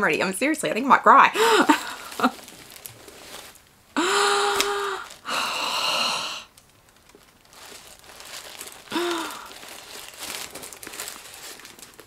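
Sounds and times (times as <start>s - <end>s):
woman sighing: 1.4s - 2.4s, 4.0s - 6.5s, 8.9s - 9.6s
woman whimpering: 1.4s - 2.4s, 4.0s - 6.4s, 8.9s - 9.5s
tissue paper rustling: 1.4s - 6.1s, 6.7s - 12.0s.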